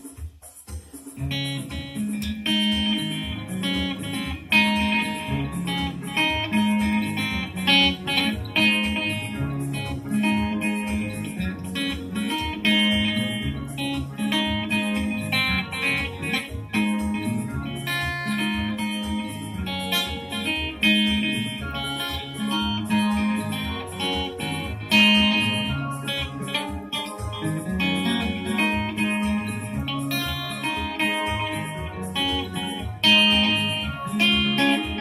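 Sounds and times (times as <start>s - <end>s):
keyboard accompaniment: 0.0s - 35.0s
steady beat: 0.0s - 35.0s
plucked electric guitar: 1.0s - 35.0s
bass line: 1.2s - 35.0s.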